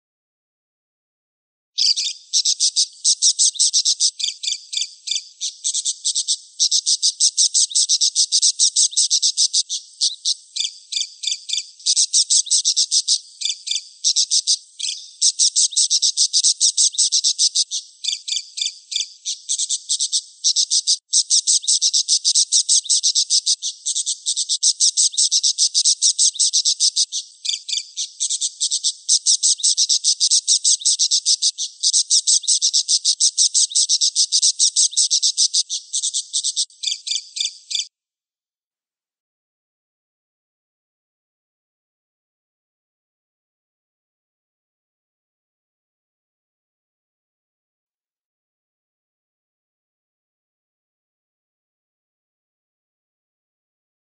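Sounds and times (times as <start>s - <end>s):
budgerigar warbling: 1.8s - 37.6s.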